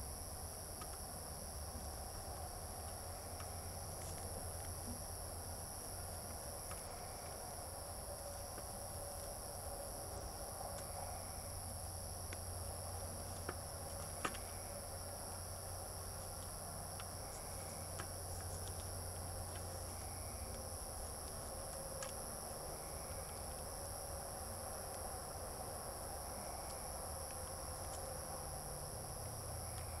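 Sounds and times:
night insects chorus: 0.0s - 30.0s.

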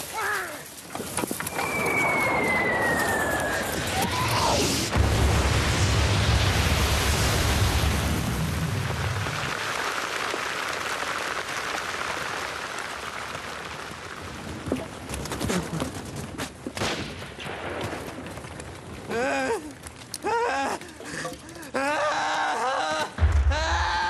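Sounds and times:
wavering human cry: 21.7s - 24.0s.

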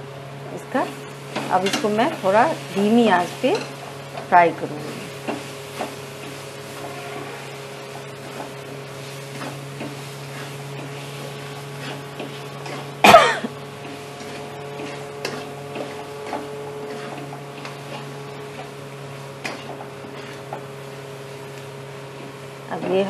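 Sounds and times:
food frying: 0.0s - 23.0s
low steady hum: 0.0s - 23.0s
spatula scraping a pan: 0.7s - 21.5s
person coughing: 13.0s - 13.5s.

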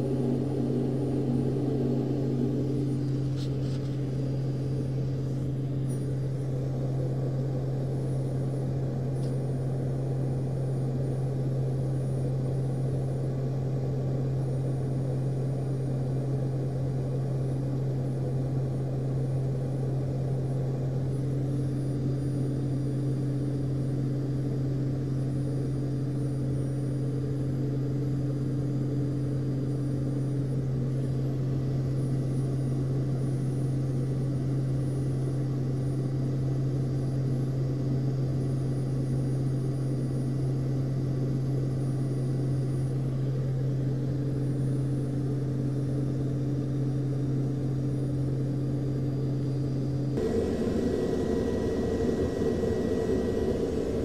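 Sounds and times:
aircraft engine drone in cockpit: 0.0s - 54.0s
higher hum: 50.2s - 54.0s.

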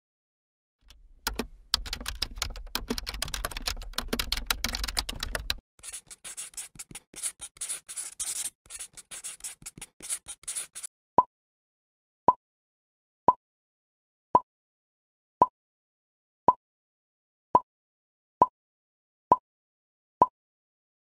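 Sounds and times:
marker scratching on paper: 5.8s - 10.9s.

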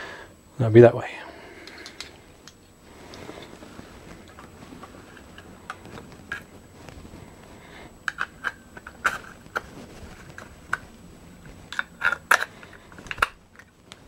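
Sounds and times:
metal parts clicking and clacking: 1.6s - 2.1s.

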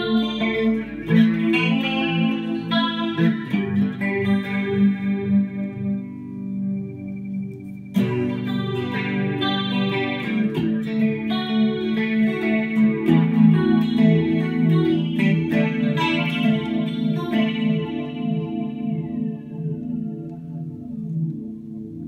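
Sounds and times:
flanged electric guitar: 0.0s - 22.0s.

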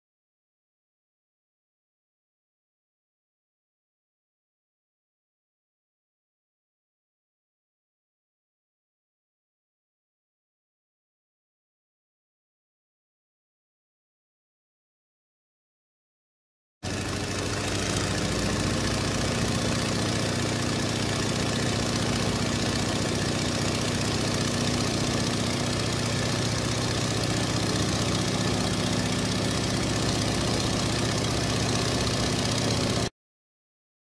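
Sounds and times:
airplane engine drone: 16.9s - 33.1s.

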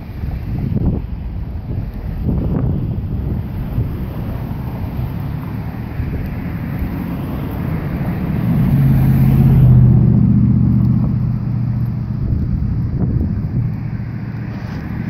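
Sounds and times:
vehicle driving past: 3.2s - 15.0s.

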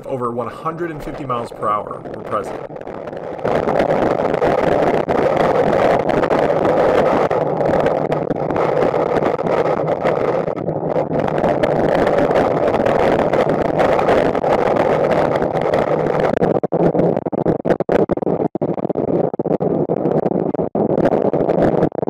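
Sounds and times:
hurricane wind rushing: 0.0s - 6.8s.

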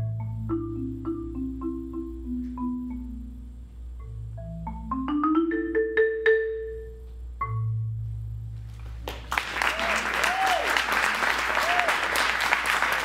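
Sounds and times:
marimba played with mallets: 0.0s - 8.0s
applause: 8.8s - 13.0s.

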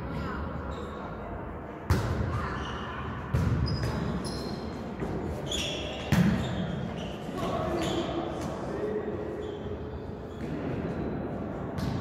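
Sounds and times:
sports shoes squeaking: 3.6s - 8.5s, 9.3s - 10.5s.

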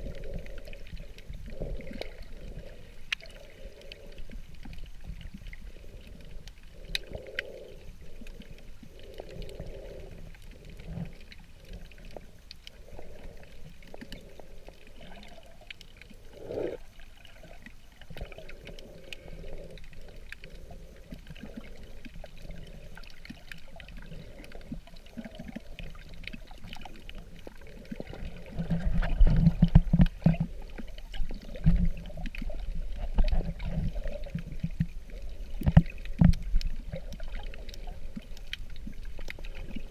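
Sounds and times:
underwater sloshing and gurgling: 0.0s - 39.9s.

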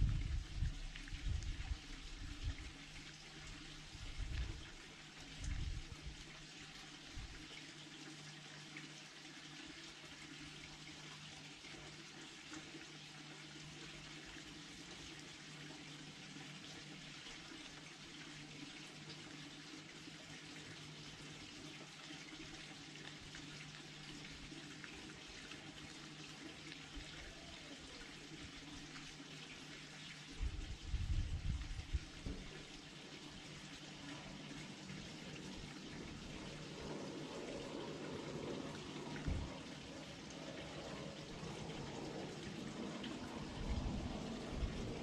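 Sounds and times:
low hum: 0.0s - 6.3s, 33.5s - 45.0s.

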